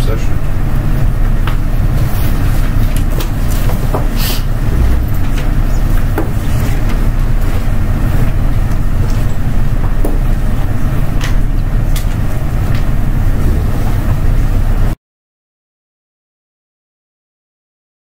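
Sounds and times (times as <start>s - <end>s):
low rumble of room noise: 0.0s - 15.0s
paper rustling: 2.0s - 4.4s.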